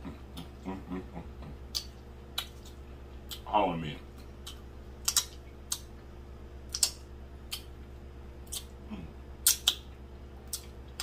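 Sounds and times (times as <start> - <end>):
man humming mm: 0.0 - 1.6, 8.8 - 9.6
wet mouth smacks: 1.7 - 3.4, 4.4 - 5.9, 6.7 - 7.7, 8.4 - 8.8, 9.4 - 9.9.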